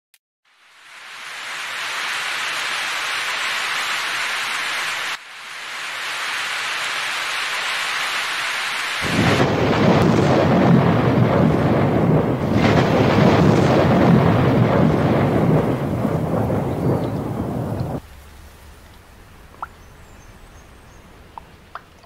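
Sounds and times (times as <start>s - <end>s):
heavy rain splashing on ground: 0.5s - 21.9s
deep rumble of thunder: 9.0s - 18.1s.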